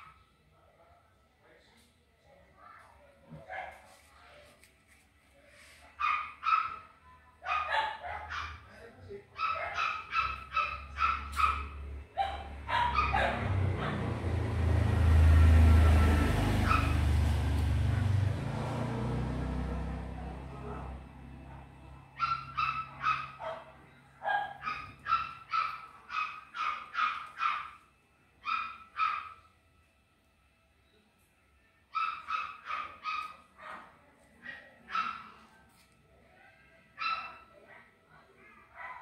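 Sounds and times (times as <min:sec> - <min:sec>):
small dog yapping: 0:09.4 - 0:14.0, 0:16.6 - 0:17.0, 0:22.2 - 0:27.8, 0:31.9 - 0:35.4
vehicle passing: 0:10.2 - 0:27.8.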